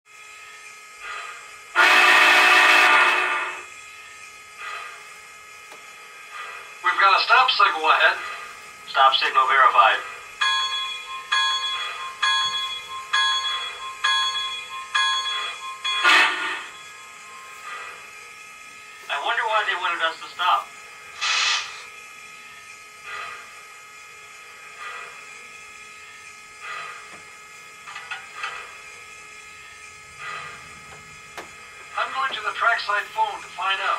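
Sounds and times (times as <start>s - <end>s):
steady hum: 0.2s - 33.9s
faint engine background: 0.4s - 33.9s
model train steam whistle: 1.7s - 3.7s, 16.0s - 16.8s
soft bursts of hissing: 21.2s - 21.9s.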